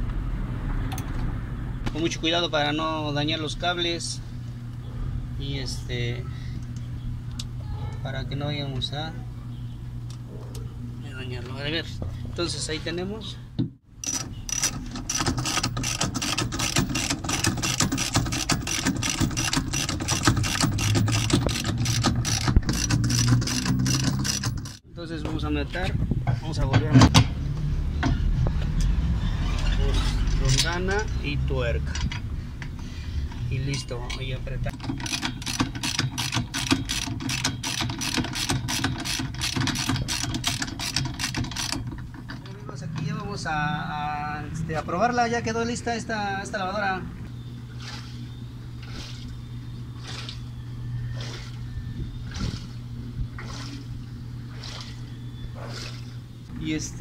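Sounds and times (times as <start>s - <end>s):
ratchet wrench clicking: 14.0s - 24.8s, 34.8s - 41.8s.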